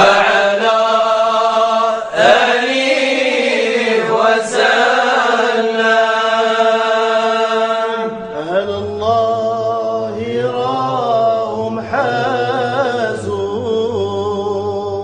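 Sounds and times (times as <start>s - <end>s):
person chanting a devotional song: 0.0s - 15.0s.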